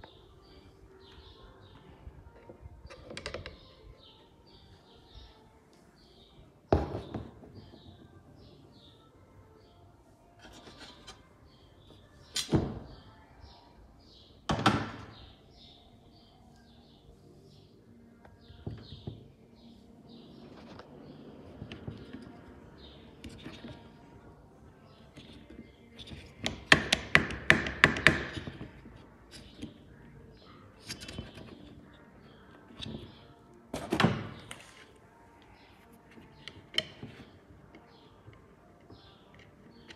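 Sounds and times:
faint birds chirping: 0:00.0 - 0:39.9.

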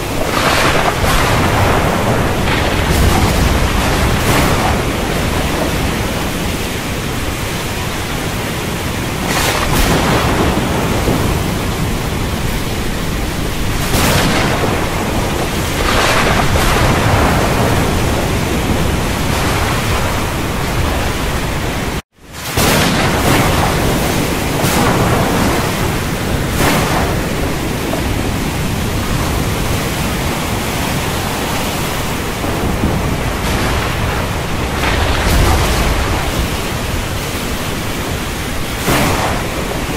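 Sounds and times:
storm noise hiss: 0:00.0 - 0:39.9
thunder rumbling: 0:00.0 - 0:39.9.

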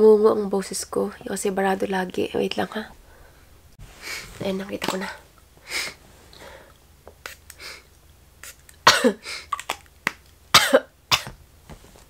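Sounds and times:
person sniffing: 0:03.8 - 0:04.4, 0:05.6 - 0:09.6
nasal spray hissing: 0:07.2 - 0:08.8
person coughing: 0:08.9 - 0:09.5, 0:10.5 - 0:11.4.

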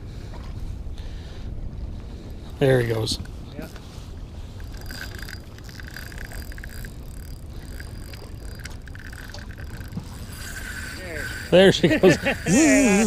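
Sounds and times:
fishing reel drag clicking: 0:02.9 - 0:13.0.

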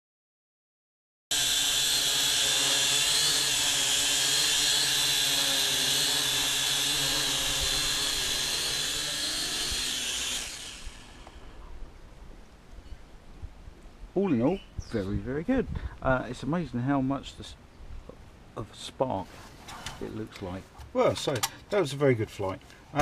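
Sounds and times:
drone motors whining: 0:01.3 - 0:11.8.

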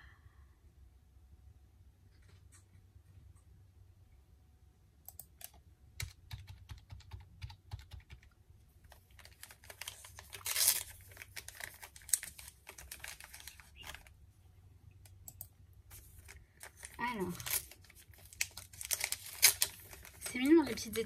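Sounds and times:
paper rustling: 0:08.8 - 0:14.2, 0:15.9 - 0:21.0.

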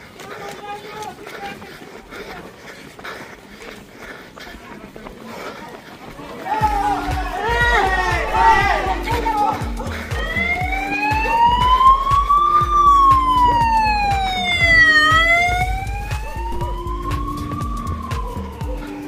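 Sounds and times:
emergency vehicle siren wailing: 0:06.6 - 0:19.0
music with steady beat: 0:06.6 - 0:19.0.

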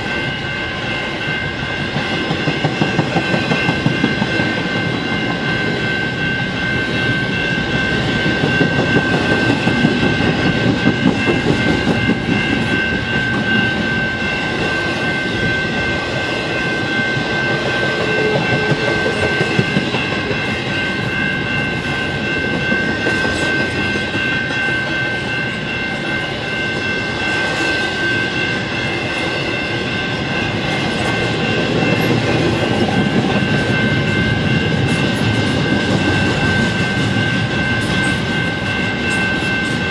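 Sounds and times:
crossing bell ringing: 0:00.0 - 0:39.9
train wheels clattering over rails: 0:01.8 - 0:06.8, 0:07.6 - 0:14.0, 0:17.2 - 0:25.0.

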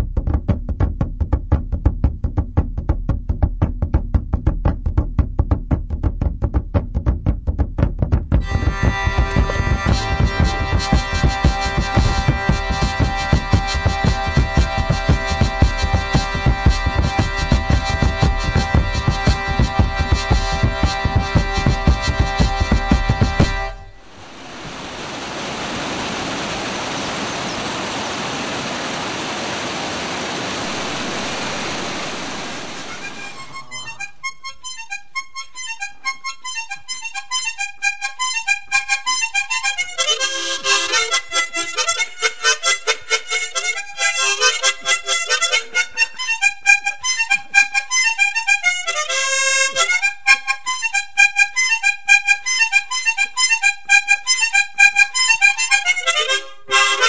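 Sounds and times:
harmonica music: 0:08.4 - 0:24.1, 0:30.6 - 0:57.0
stream and waterfall rushing: 0:24.0 - 0:33.7.

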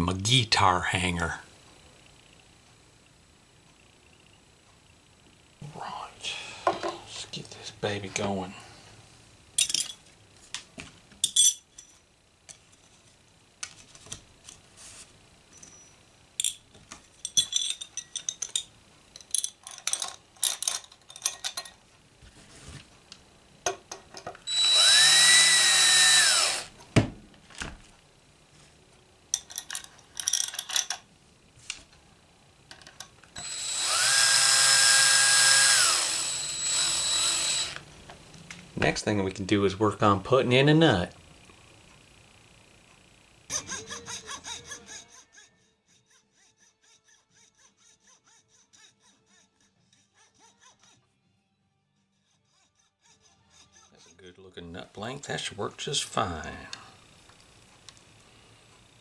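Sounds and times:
small metal parts clicking: 0:16.4 - 0:21.8, 0:29.3 - 0:31.1
cordless drill driving screws: 0:24.5 - 0:26.7, 0:33.4 - 0:37.8.

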